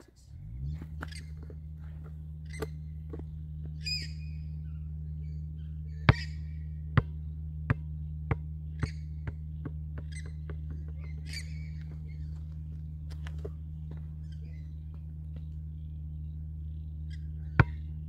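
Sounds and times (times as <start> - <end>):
basketball bouncing on concrete: 0.8 - 4.4, 6.0 - 15.6, 17.4 - 18.0
bird squawking: 1.0 - 1.6, 3.8 - 6.8, 8.8 - 9.2, 10.0 - 12.5.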